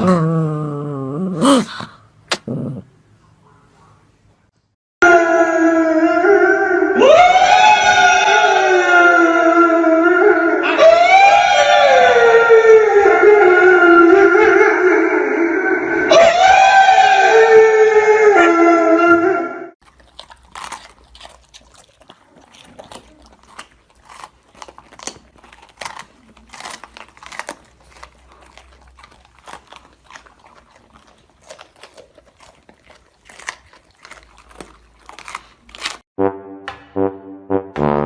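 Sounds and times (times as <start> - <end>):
crunches and clicks of biting: 1.6 - 2.6, 19.8 - 36.1
husky howling into a microphone: 5.0 - 19.7
puppies chewing rubber toys: 19.8 - 36.1.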